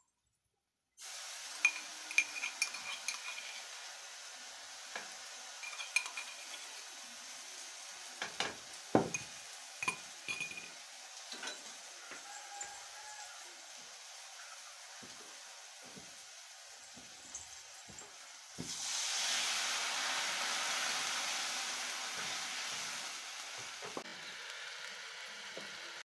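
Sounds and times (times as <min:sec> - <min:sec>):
frying sizzle: 0:01.0 - 0:26.0
steel vessels clinking: 0:01.6 - 0:03.8, 0:04.9 - 0:07.0, 0:08.2 - 0:11.8.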